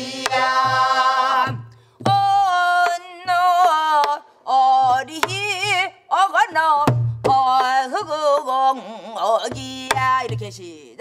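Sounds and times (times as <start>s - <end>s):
barrel drum strikes and thumps: 0.0s - 3.0s
woman singing folk song: 2.0s - 11.0s.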